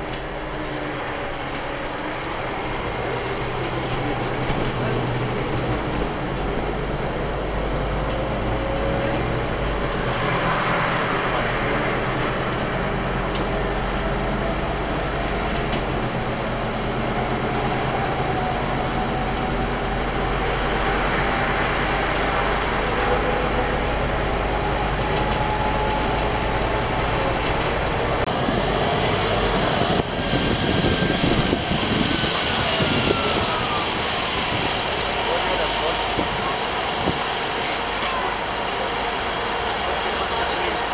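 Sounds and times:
bus engine humming: 0.0 - 40.9
bus whine: 0.0 - 40.9.

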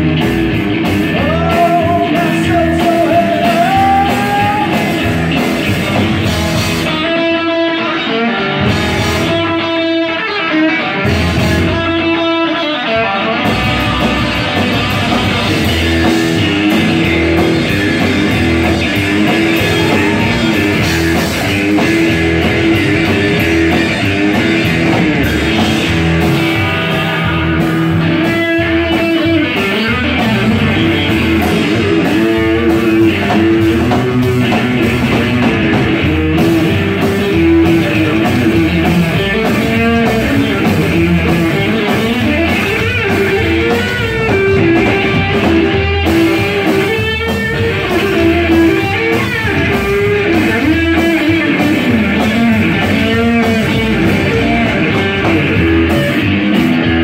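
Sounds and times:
drum kit: 0.0 - 57.0
electric guitar: 0.0 - 57.0
double bass: 13.5 - 29.0.

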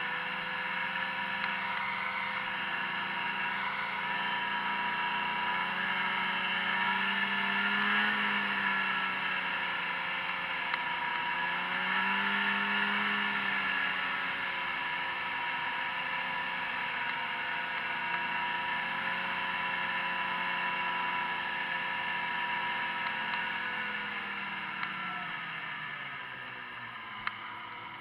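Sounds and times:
snowmobile engine running: 0.0 - 28.0.

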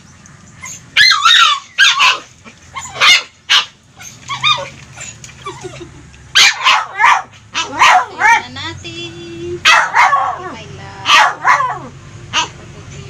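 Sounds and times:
dog barking and yipping: 0.6 - 5.7, 6.3 - 8.5, 9.6 - 12.6.

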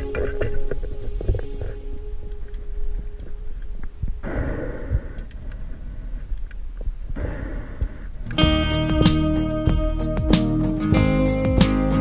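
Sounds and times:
underwater clicks: 4.2 - 5.6.

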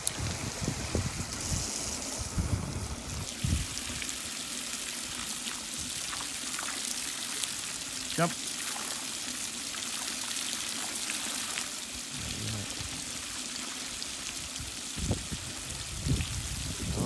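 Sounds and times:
water stream splashing into pool: 0.0 - 17.0.

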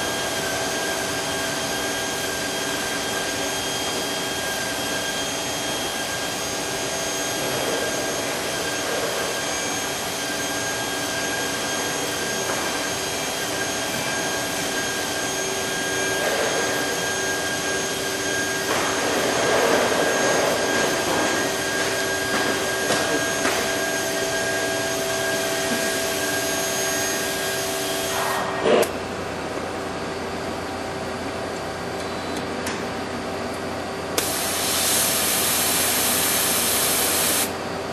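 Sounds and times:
high steady whining tones: 0.0 - 37.9.

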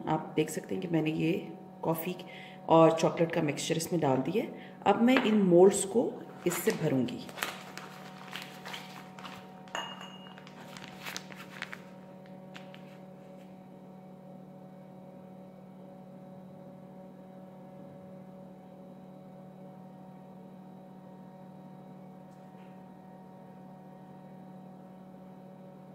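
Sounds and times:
steady low hum: 0.0 - 20.6.

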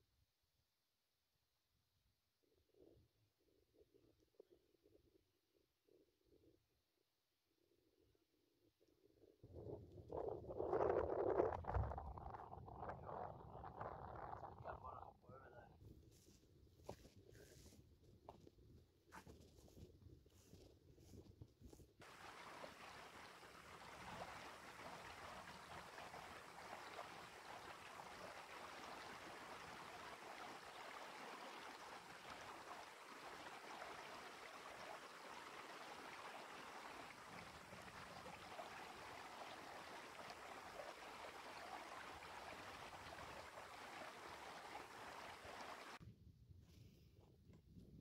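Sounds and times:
faint stream flowing: 22.0 - 46.0.

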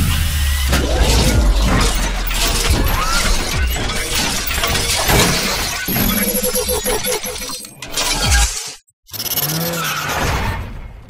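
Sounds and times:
heavy low rumble: 0.0 - 4.0
music: 0.0 - 5.8.

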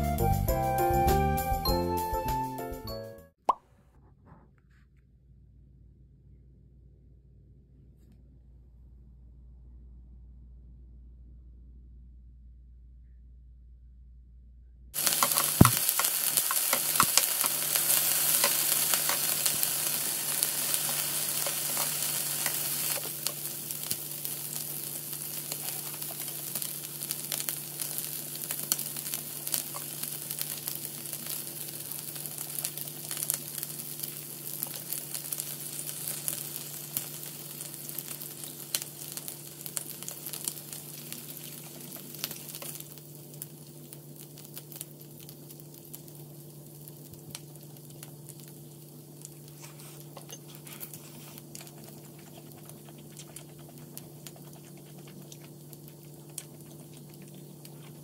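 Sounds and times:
steady low hum: 3.7 - 58.0
meat sizzling on a grill: 15.0 - 52.7.

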